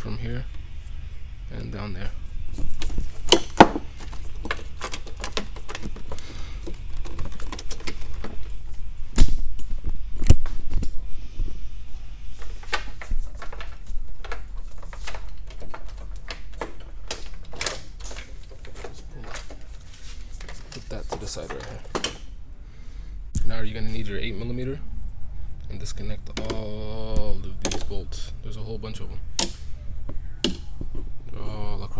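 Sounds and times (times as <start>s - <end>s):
steady low hum: 0.0s - 31.9s
parts clicking and clattering: 2.5s - 9.6s, 12.4s - 22.3s.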